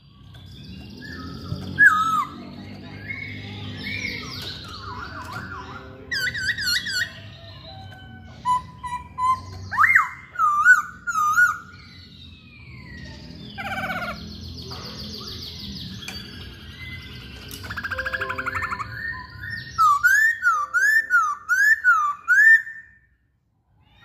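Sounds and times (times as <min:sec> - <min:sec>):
bird singing whistled phrases: 0:08.4 - 0:11.8, 0:15.8 - 0:23.1
bird chattering trill: 0:17.6 - 0:22.6.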